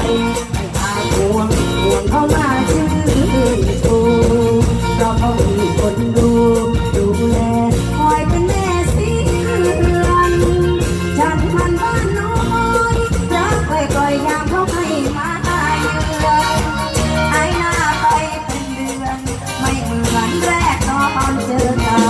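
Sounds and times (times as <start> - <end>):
live band with steady beat: 0.0 - 22.0
woman singing into a microphone: 0.0 - 22.0.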